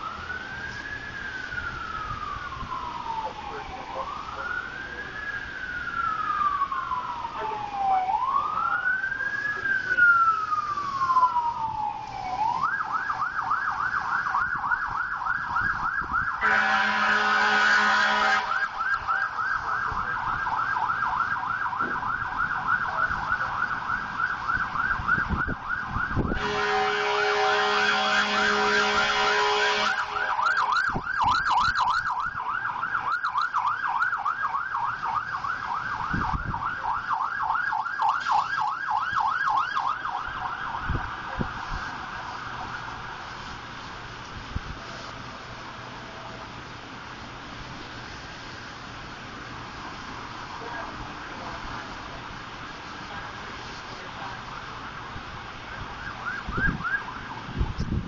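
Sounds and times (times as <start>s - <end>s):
emergency siren wailing and yelping: 0.0s - 46.6s, 49.4s - 58.0s
vehicle horn blasts: 16.4s - 18.6s, 26.3s - 30.2s.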